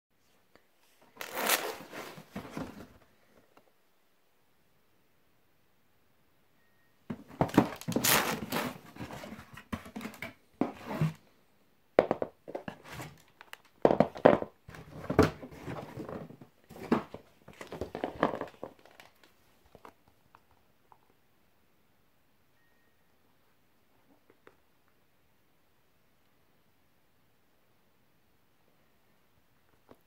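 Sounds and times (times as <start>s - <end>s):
cardboard and paper rustling: 1.2s - 3.1s, 7.1s - 11.2s, 14.7s - 19.4s.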